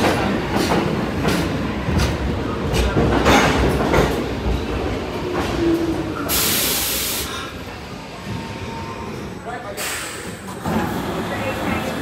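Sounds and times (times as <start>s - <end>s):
subway train rumbling: 0.0s - 12.0s
air hissing: 6.2s - 7.5s.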